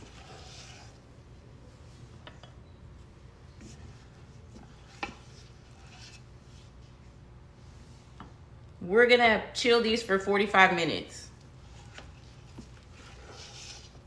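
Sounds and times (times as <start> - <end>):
spatula scraping metal bowl: 0.0 - 1.0.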